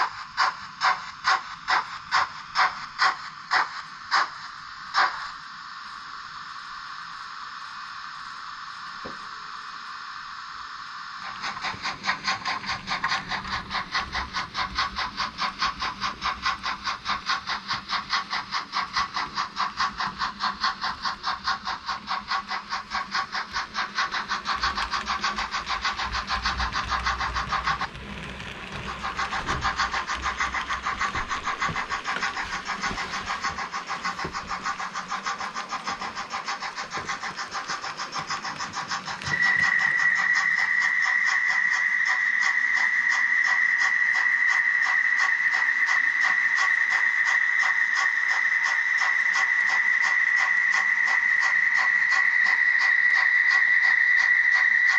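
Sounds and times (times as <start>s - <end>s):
model train steam chuffing: 0.0s - 54.9s
high steady whistle: 38.5s - 54.9s.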